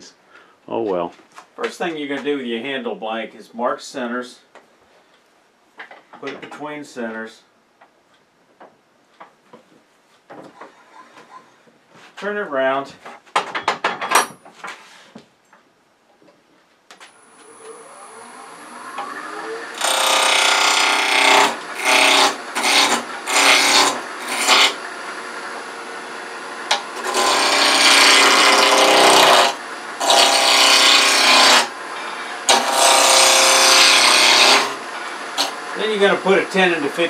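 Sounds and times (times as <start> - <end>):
wood lathe whine: 17.1 - 37.0
gouge cutting wood on lathe: 17.4 - 36.6.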